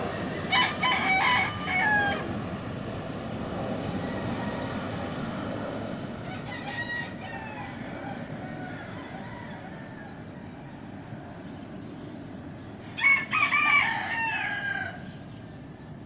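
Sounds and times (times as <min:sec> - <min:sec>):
jet airliner rumble: 0:00.0 - 0:16.0
rooster crowing: 0:00.3 - 0:02.4, 0:04.0 - 0:05.3, 0:06.2 - 0:11.0, 0:12.9 - 0:15.2.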